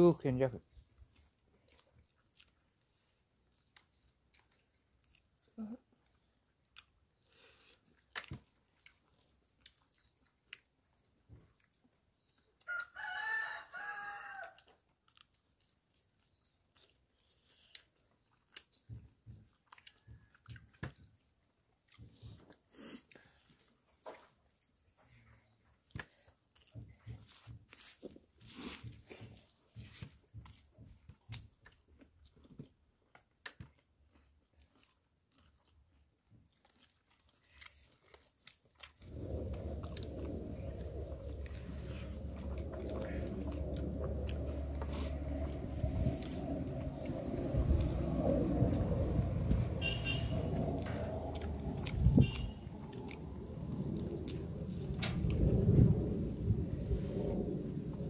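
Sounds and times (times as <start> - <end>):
faint chewing clicks: 0.6 - 13.2, 14.2 - 55.8
rooster crowing: 12.7 - 14.6
wet mouth clicks: 49.5 - 55.5.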